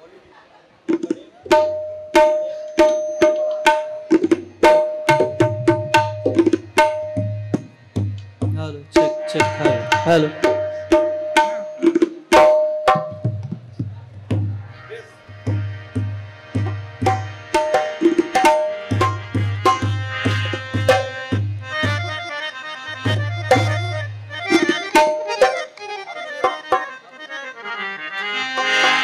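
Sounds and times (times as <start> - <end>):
tabla bass drum strokes: 0.9 - 22.2
tabla treble drum strokes: 0.9 - 22.2, 23.0 - 25.8.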